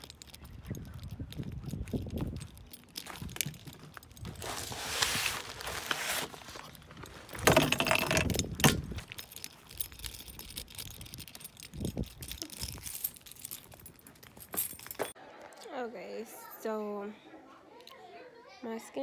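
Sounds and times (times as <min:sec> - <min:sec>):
keys jangling: 0:00.0 - 0:04.4, 0:06.7 - 0:15.2.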